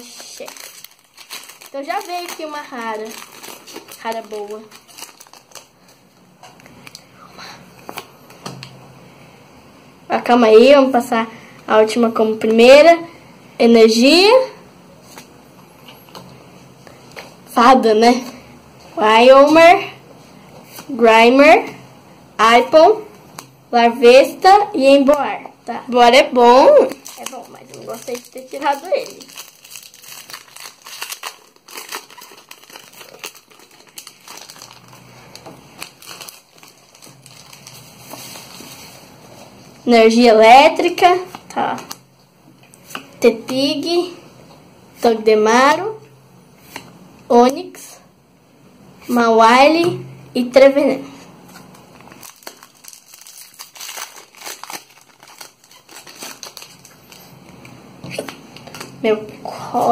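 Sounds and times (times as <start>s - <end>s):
foil wrapper crinkling: 0.0s - 6.1s, 26.8s - 39.1s, 51.5s - 59.0s
trading cards being handled: 0.0s - 7.1s, 26.9s - 39.5s, 51.4s - 59.0s.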